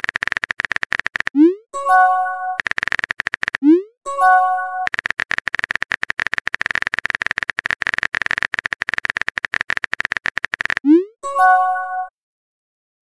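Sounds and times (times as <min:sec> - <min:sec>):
phone keyboard typing clicks: 0:00.0 - 0:01.4, 0:02.0 - 0:03.7, 0:04.6 - 0:11.0
message chime: 0:11.2 - 0:12.1.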